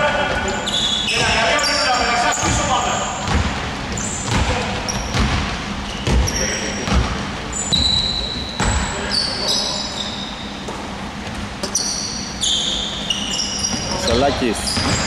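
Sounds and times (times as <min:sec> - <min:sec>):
sneakers squeaking on court: 0:00.4 - 0:15.0
basketball bouncing on hardwood: 0:03.2 - 0:03.6, 0:04.3 - 0:07.2, 0:14.7 - 0:15.0.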